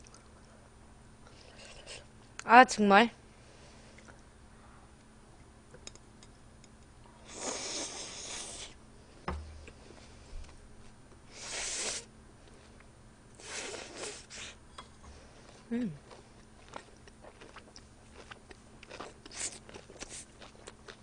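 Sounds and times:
person chewing: 0:15.4 - 0:21.0.

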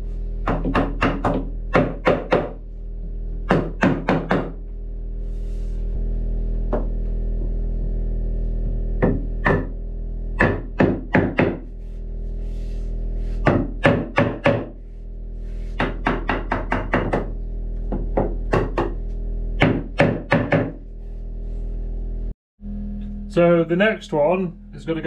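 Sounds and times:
hammer knocking wooden batten: 0:00.4 - 0:02.6, 0:03.5 - 0:04.6, 0:10.4 - 0:11.7, 0:13.4 - 0:14.7, 0:15.8 - 0:17.3.

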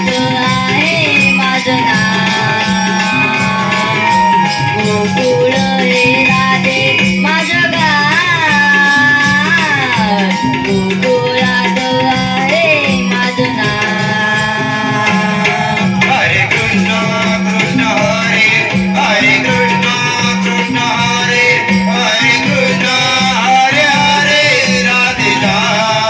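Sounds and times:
child singing into a microphone: 0:00.0 - 0:16.3
jingling hand percussion: 0:00.0 - 0:26.0
steady drum beat: 0:00.0 - 0:26.0.

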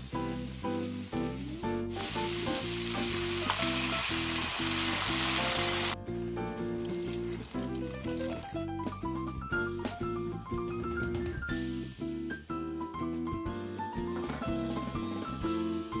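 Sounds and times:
meat and onions sizzling in pan: 0:00.0 - 0:08.6
water hissing in hot pan: 0:00.0 - 0:08.6.

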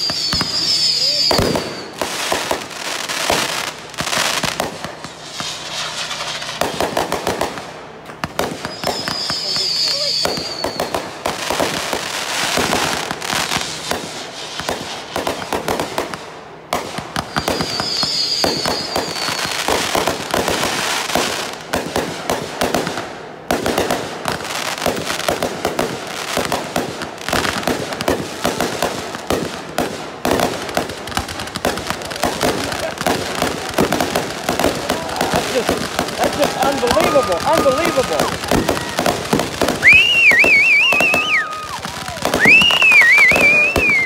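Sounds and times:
firework whistle: 0:00.0 - 0:03.8, 0:04.4 - 0:07.2, 0:08.4 - 0:15.9, 0:17.1 - 0:21.5, 0:32.2 - 0:44.0
fireworks crackling and popping: 0:00.0 - 0:44.0.

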